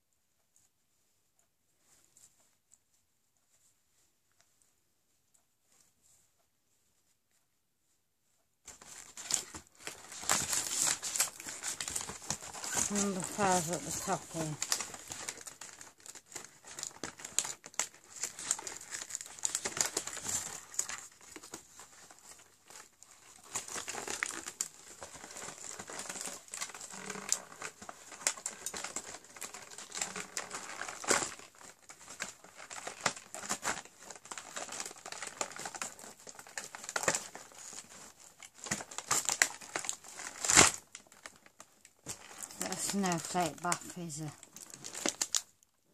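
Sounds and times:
packaging crinkling and tearing: 0:08.7 - 0:45.9.

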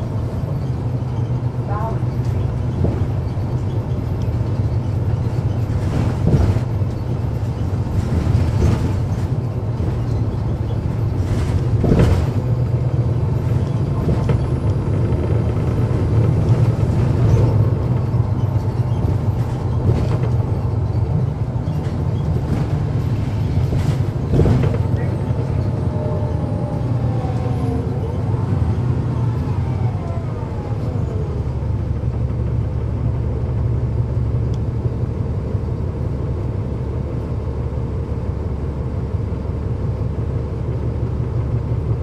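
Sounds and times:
bus diesel engine drone: 0:00.0 - 0:42.0
knocks and rattles: 0:13.6 - 0:25.7.

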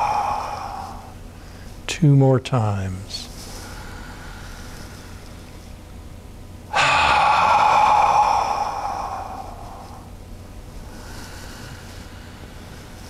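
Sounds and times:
deep breathy sigh: 0:00.0 - 0:01.2, 0:06.7 - 0:10.1.

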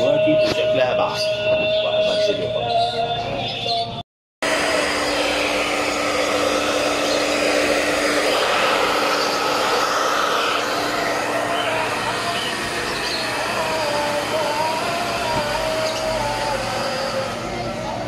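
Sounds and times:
hair dryer blowing: 0:04.4 - 0:18.0.

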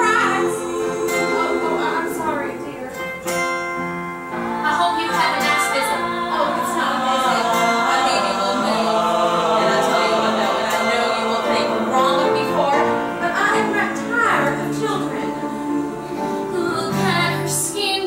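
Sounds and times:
acoustic guitar: 0:00.0 - 0:18.0
ensemble singing together: 0:00.0 - 0:18.0.

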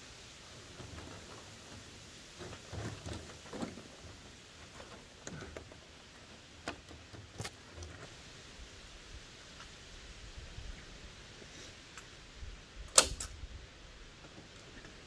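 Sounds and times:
wire mesh rustling on soil: 0:00.0 - 0:15.0
sharp clicks: 0:12.9 - 0:13.4.

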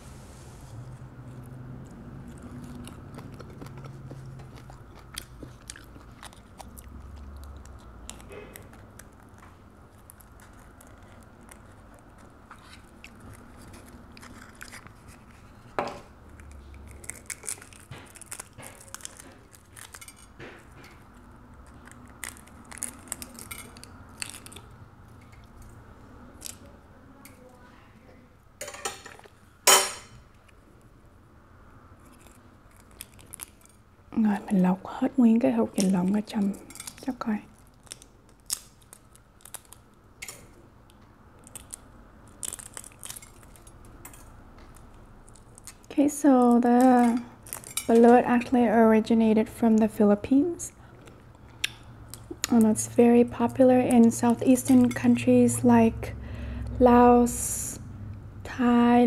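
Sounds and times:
chewing: 0:01.0 - 0:25.8, 0:32.0 - 0:33.8, 0:36.5 - 0:45.9, 0:50.7 - 0:52.7.

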